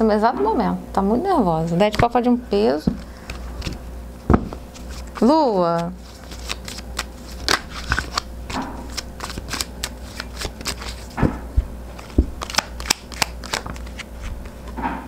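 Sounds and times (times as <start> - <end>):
cards being shuffled: 3.0 - 14.7.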